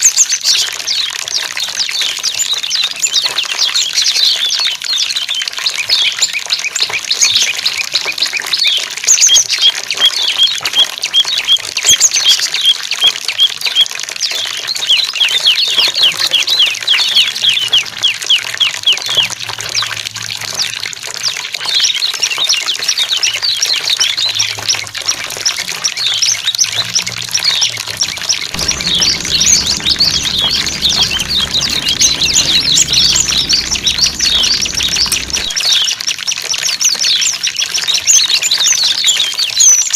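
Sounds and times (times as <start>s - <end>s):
running water: 17.0s - 35.9s.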